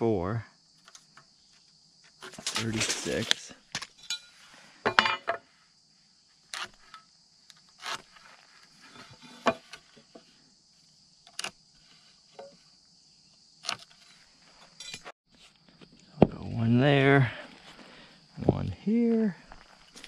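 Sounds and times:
insects chirring: 0:00.0 - 0:20.0
metal tool tapping on wooden beam: 0:12.4 - 0:12.6.

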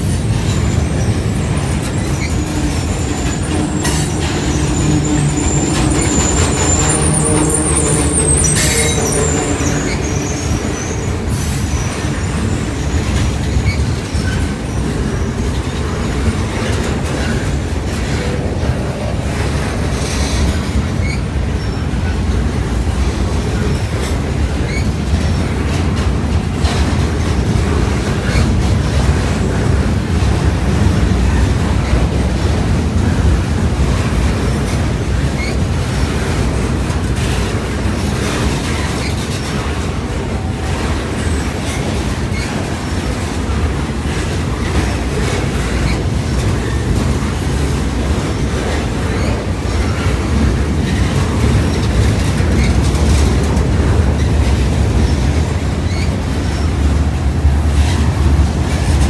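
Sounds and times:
clacks over rail joints: 0:00.0 - 0:59.0
freight train wheels rumbling: 0:00.0 - 0:59.0
faint wheel squeals: 0:00.6 - 0:14.8.

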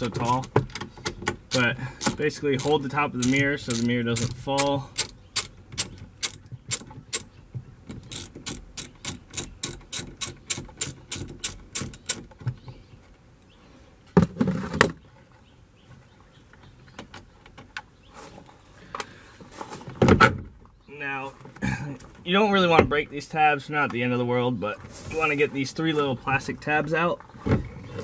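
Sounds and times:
ratchet clicking: 0:08.1 - 0:12.2.

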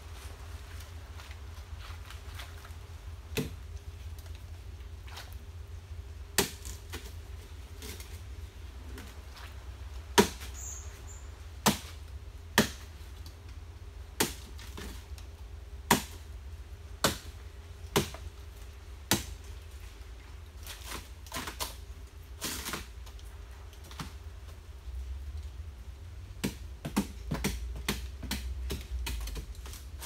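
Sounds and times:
chopping palm stems: 0:03.3 - 0:03.6, 0:06.3 - 0:07.2, 0:10.1 - 0:10.6, 0:11.6 - 0:13.0, 0:14.2 - 0:15.1, 0:15.8 - 0:16.3, 0:17.0 - 0:18.3, 0:19.0 - 0:19.5, 0:20.6 - 0:21.8, 0:22.4 - 0:23.1, 0:26.4 - 0:30.0.

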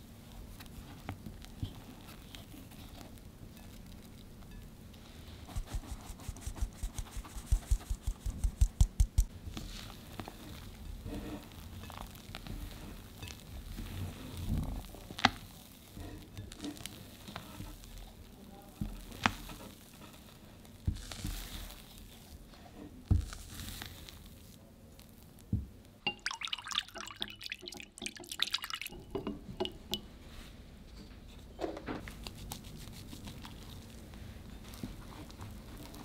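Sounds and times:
whisk clattering in glass bowl: 0:26.1 - 0:30.1
spatula folding batter in bowl: 0:32.0 - 0:36.0.

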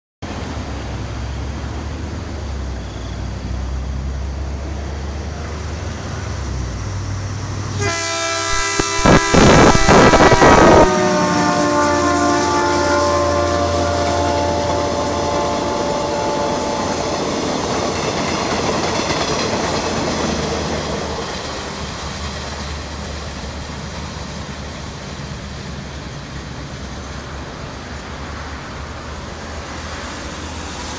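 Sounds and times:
train rumble and wheel clatter: 0:00.2 - 0:30.9
locomotive horn: 0:07.7 - 0:17.2.

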